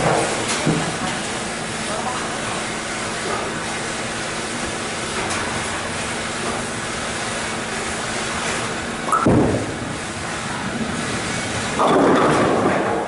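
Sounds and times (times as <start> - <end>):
bowling alley din: 9.1 - 13.0.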